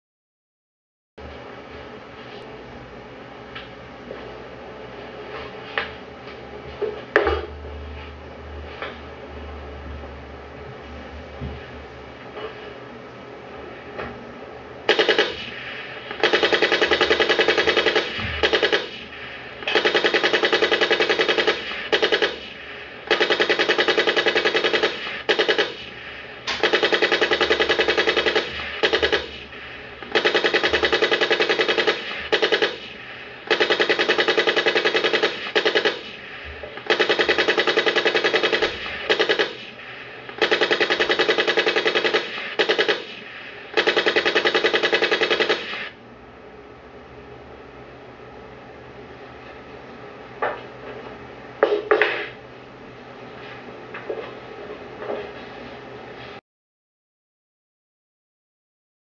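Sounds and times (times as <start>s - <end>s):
machine-gun fire: 14.9s - 25.9s, 26.5s - 46.0s.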